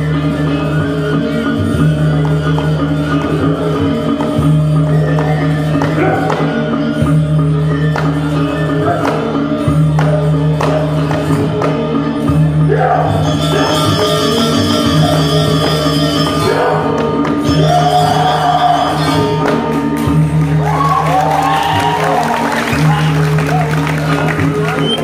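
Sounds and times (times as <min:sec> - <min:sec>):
gamelan music: 0:00.0 - 0:25.0
person singing: 0:08.5 - 0:25.0.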